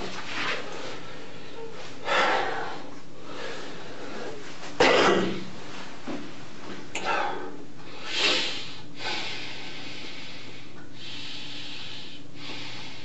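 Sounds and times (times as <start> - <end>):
man breathing heavily through nose: 0.9 - 4.5, 7.0 - 13.0
sharp sniffs: 8.0 - 9.4.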